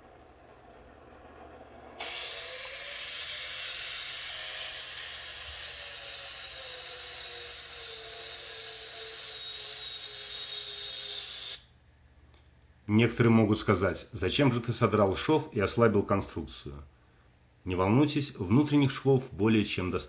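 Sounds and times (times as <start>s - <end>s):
power grinder grinding metal: 2.0s - 11.6s.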